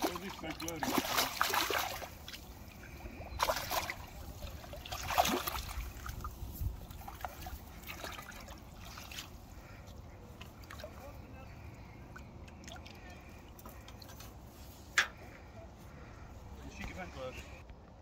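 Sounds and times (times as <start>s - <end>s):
fish splashing in a net: 0.0s - 9.8s
water trickling and lapping: 0.0s - 17.6s.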